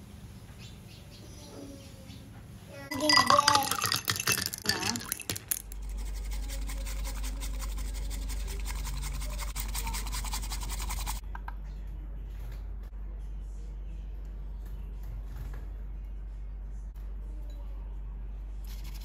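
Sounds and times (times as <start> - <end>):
steady low hum: 5.6 - 19.0
bamboo whisk brushing in bowl: 5.8 - 11.2.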